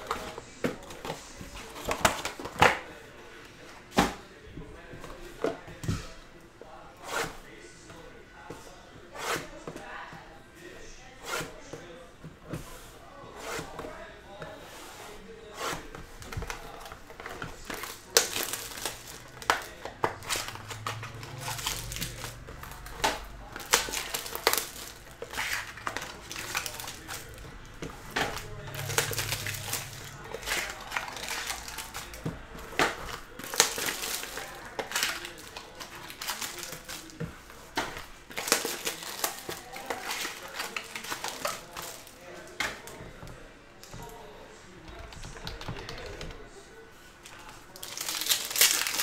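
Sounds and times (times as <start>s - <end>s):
plastic wrap crinkling: 16.0s - 43.0s, 47.2s - 49.0s.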